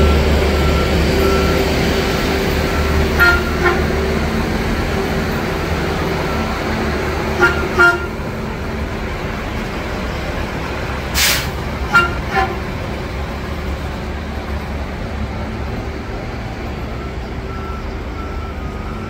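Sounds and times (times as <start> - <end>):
diesel engine idling: 0.0 - 19.0
short train horn toots: 3.2 - 4.0, 7.4 - 8.2, 11.2 - 12.7.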